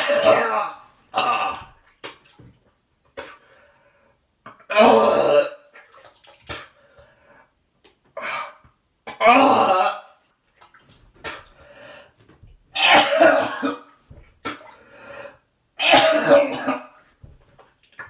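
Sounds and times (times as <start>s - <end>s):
man retching and vomiting: 0.0s - 2.3s, 4.4s - 5.8s, 8.1s - 10.2s, 12.7s - 14.8s, 15.8s - 17.0s.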